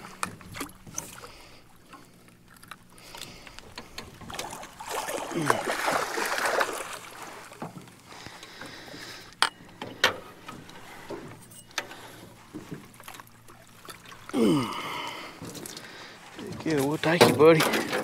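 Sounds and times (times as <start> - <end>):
faint wind: 0.0 - 18.0
person grunting: 5.3 - 5.8, 14.3 - 15.2.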